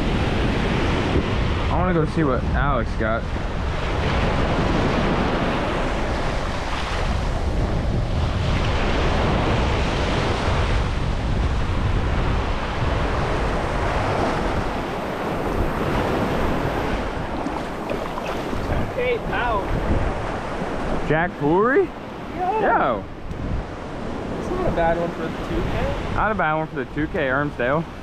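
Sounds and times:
small waves breaking on beach: 0:00.0 - 0:28.0
wind buffeting microphone: 0:00.0 - 0:28.0.

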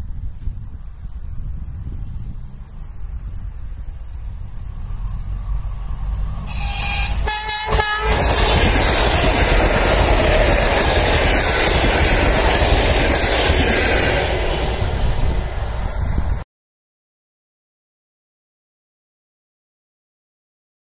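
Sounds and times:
train wheels on track: 0:00.1 - 0:16.4
train horn blasts: 0:06.4 - 0:10.6.

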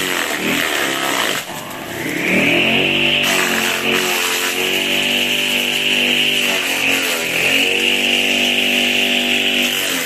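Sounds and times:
electric motor whining: 0:00.0 - 0:10.0.

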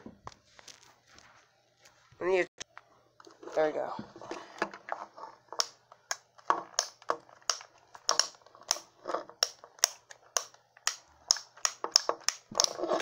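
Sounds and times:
plastic toy joints clicking: 0:11.3 - 0:13.0.

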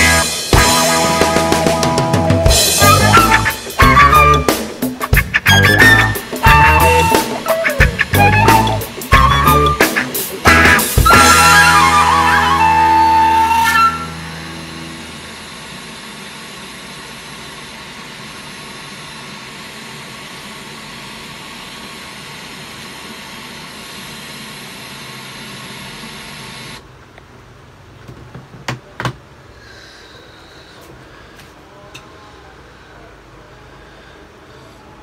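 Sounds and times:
tv static hiss: 0:00.0 - 0:27.9.

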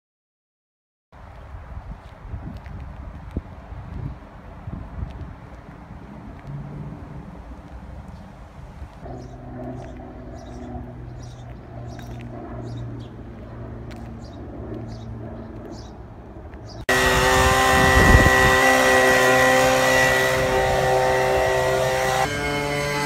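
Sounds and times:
low hum: 0:06.2 - 0:23.0
birds chirping: 0:07.0 - 0:23.0
leaf blower running: 0:16.9 - 0:23.0.

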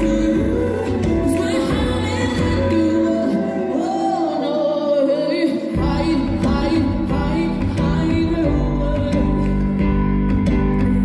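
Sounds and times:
bass and beat: 0:05.8 - 0:11.0.

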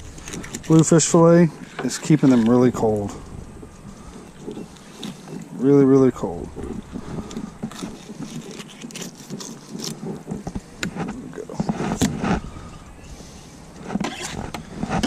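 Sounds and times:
knife scraping along fish: 0:07.0 - 0:12.6.

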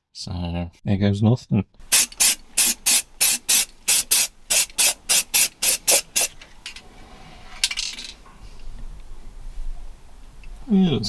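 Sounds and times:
aerosol paint can spraying: 0:01.9 - 0:06.4.

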